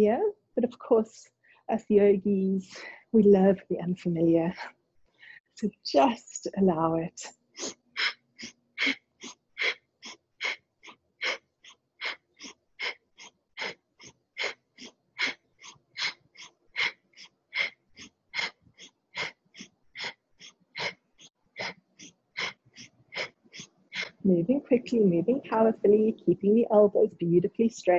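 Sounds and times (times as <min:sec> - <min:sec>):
rapid rhythmic breathing: 0:07.6 - 0:24.4.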